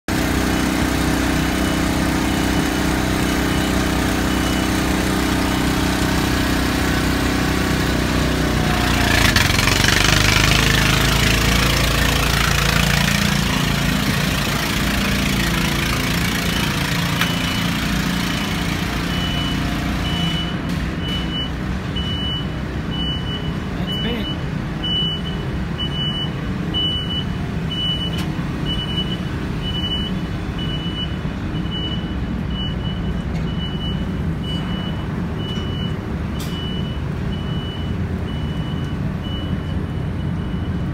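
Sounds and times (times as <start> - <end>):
machinery drone: 0.1 - 22.6
short high beeps: 19.0 - 31.2.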